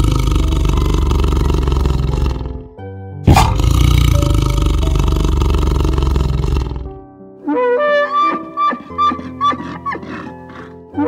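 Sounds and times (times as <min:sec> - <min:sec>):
tiger roaring: 0:00.0 - 0:02.7, 0:03.3 - 0:07.0, 0:08.3 - 0:10.8
background music: 0:00.0 - 0:11.0.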